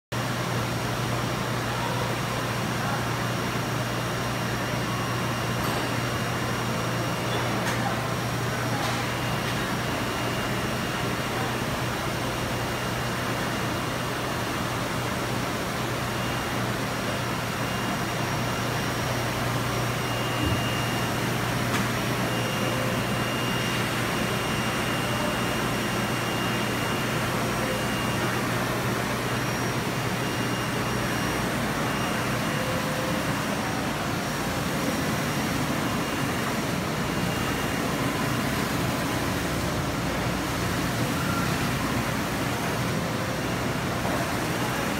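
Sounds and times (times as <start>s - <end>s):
printer mechanical whir: 0.2s - 44.9s.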